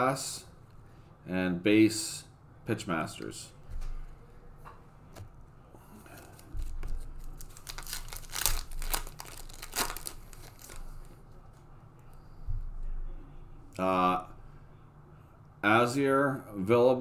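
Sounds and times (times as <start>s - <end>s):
foil wrapper tearing and crinkling: 6.2s - 10.9s.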